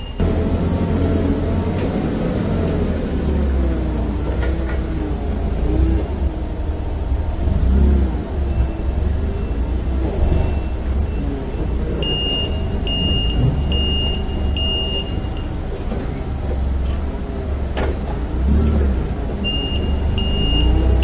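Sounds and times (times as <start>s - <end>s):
forklift engine rumbling: 0.0s - 21.0s.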